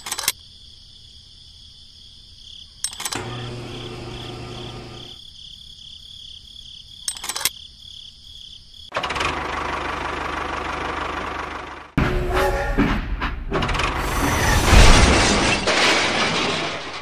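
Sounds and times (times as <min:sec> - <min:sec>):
sharp clicks: 0:00.0 - 0:00.4, 0:02.8 - 0:03.3, 0:07.0 - 0:07.6
small motor humming: 0:03.1 - 0:05.2
loud noisy motor: 0:03.2 - 0:05.2.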